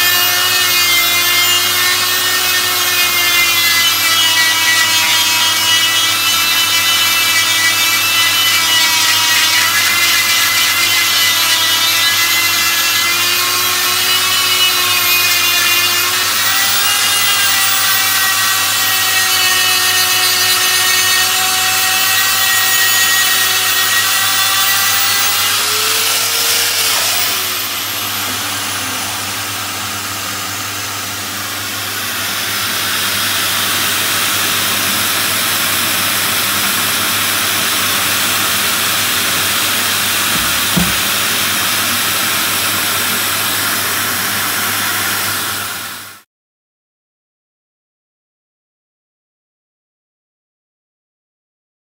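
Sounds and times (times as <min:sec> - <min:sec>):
grinding stone rasping on metal: 0:00.0 - 0:29.7, 0:39.2 - 0:41.7
die grinder whining: 0:00.0 - 0:46.1.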